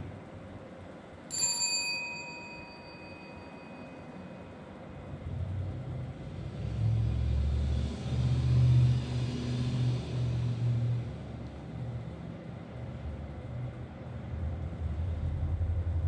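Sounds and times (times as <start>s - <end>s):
bell ringing: 1.3s - 4.5s
low uneven rumble: 5.0s - 16.0s.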